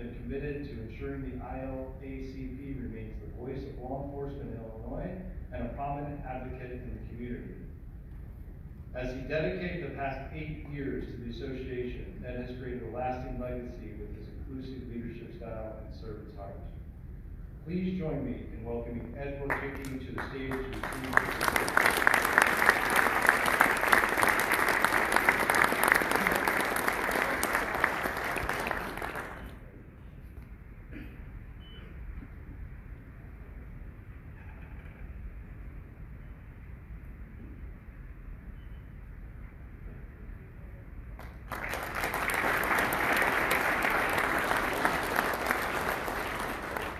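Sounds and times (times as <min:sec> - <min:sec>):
audience applauding: 0:19.5 - 0:29.6, 0:41.2 - 0:46.9.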